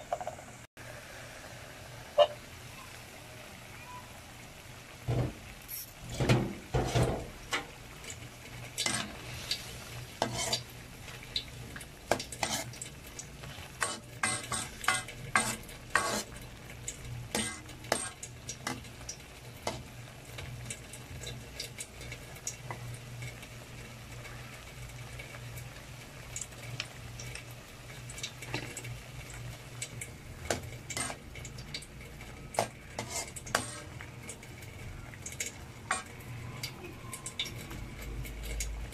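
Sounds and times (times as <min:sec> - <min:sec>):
sauce sizzling: 0:00.1 - 0:38.9
metal ladle scraping wok: 0:08.8 - 0:10.7, 0:12.3 - 0:12.8, 0:13.4 - 0:16.4, 0:30.9 - 0:31.2, 0:32.6 - 0:34.0.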